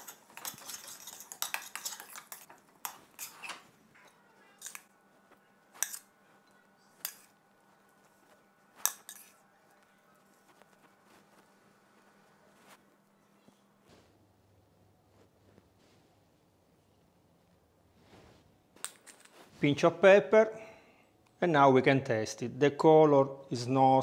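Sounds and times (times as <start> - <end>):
utensil clinking on plate: 0.0 - 3.6
metal spoon scraping pot: 0.0 - 4.9, 5.7 - 6.1, 8.8 - 9.4.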